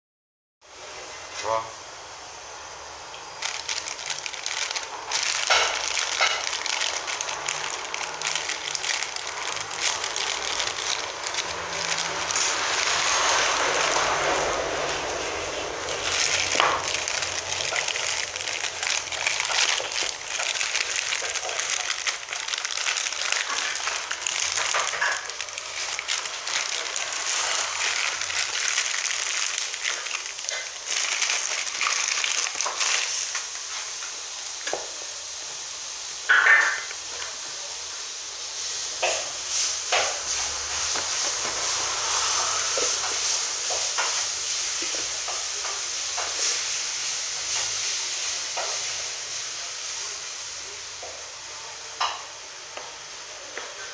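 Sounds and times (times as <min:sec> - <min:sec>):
plastic bag crinkling and tearing: 0:03.4 - 0:33.6.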